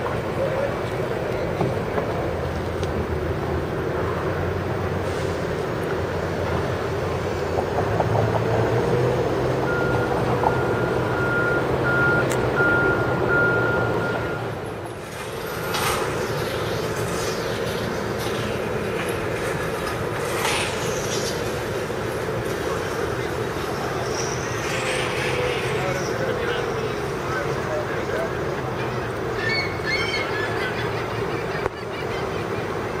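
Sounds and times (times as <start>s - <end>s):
diesel engine running: 0.0s - 29.4s
traffic noise: 0.0s - 33.0s
reversing alarm beeping: 9.6s - 14.6s.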